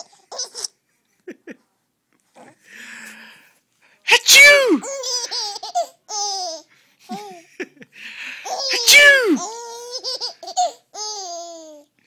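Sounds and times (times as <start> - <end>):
infant laughing: 4.7 - 7.6, 8.4 - 11.9.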